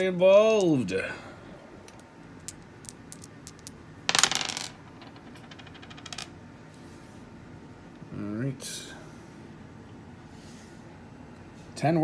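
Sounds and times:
dice clattering on wooden desk: 1.9 - 6.3.

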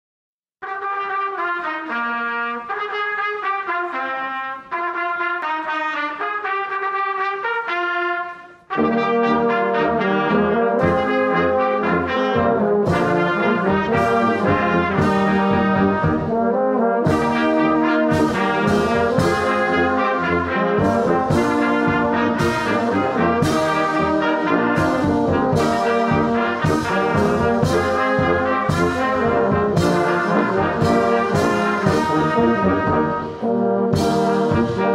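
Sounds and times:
brass band playing a hymn: 0.6 - 34.9
drum beats: 10.8 - 34.9.

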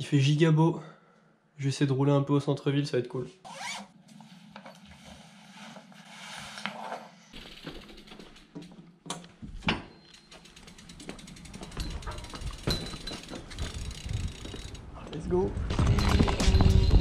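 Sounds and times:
bicycle hub ratchet clicking: 10.4 - 14.8.

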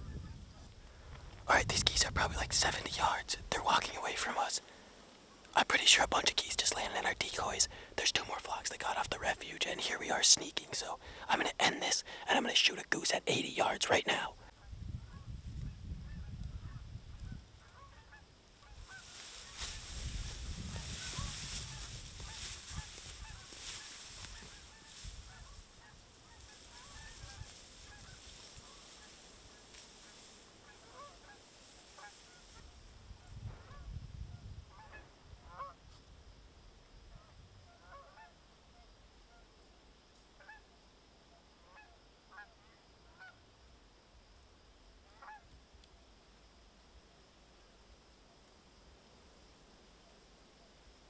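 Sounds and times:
steady hiss: 0.0 - 37.4
geese honking: 17.6 - 29.2, 30.1 - 32.5.

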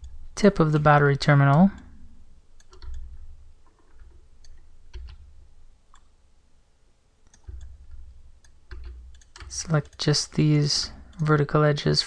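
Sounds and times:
computer mouse and keys clicking: 0.0 - 1.9, 2.5 - 5.3, 5.9 - 6.2, 7.2 - 11.4.

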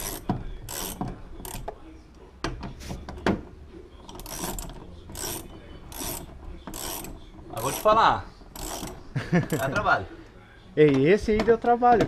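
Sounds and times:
hand tool rasping: 0.0 - 1.7, 4.1 - 9.7.

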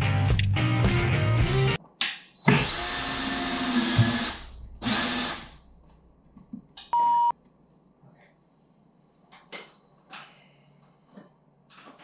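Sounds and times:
cordless drill driving: 2.5 - 5.5.

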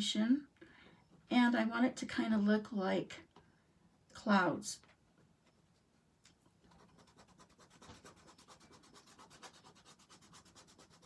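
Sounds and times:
crayon scribbling on paper: 6.7 - 11.0.

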